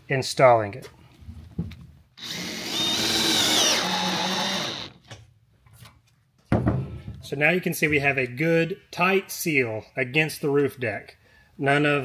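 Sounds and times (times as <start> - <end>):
cordless drill driving screw: 2.2 - 5.0.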